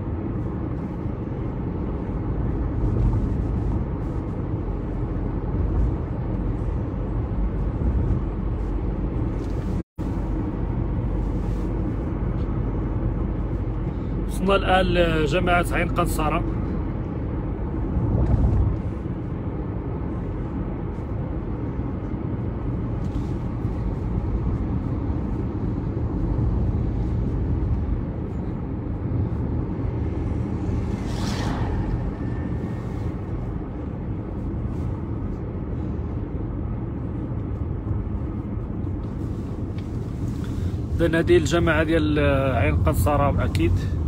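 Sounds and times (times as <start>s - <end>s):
car cabin road and engine noise: 0.0s - 44.0s
oncoming traffic rushing past: 15.2s - 38.9s.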